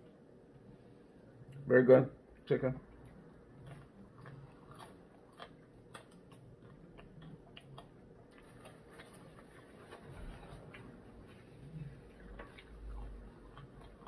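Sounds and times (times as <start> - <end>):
person chewing crunchy food: 3.0 - 14.0.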